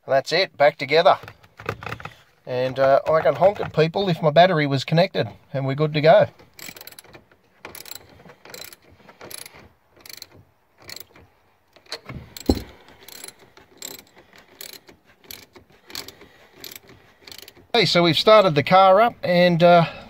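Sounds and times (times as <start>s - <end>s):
socket ratchet clicking: 6.5s - 11.2s, 11.8s - 17.7s.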